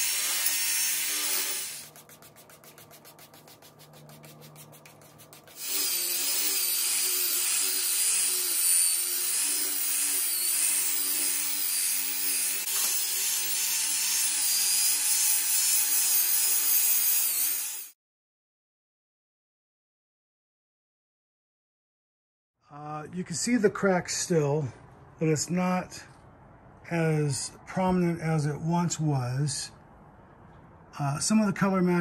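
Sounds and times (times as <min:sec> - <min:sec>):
angle grinder polishing marble: 0:00.0 - 0:18.0.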